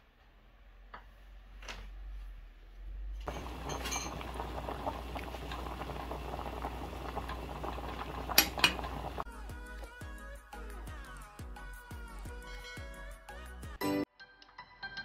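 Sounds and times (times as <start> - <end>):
ladle clinking against pot: 3.3 - 4.5
soup boiling and bubbling: 3.3 - 9.3
music: 9.2 - 15.0.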